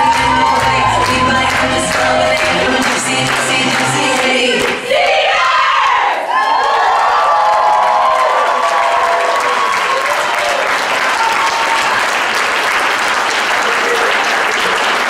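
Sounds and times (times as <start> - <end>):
whoops and cheers: 0.0 - 2.7, 6.2 - 12.2
audience applauding: 0.0 - 4.8, 6.4 - 15.0.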